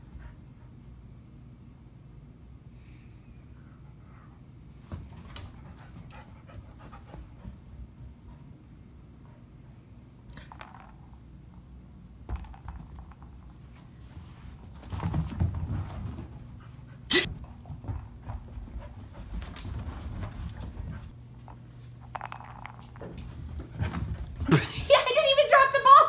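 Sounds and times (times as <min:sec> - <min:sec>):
dog panting and scuffling: 0:04.8 - 0:08.5, 0:14.1 - 0:21.2.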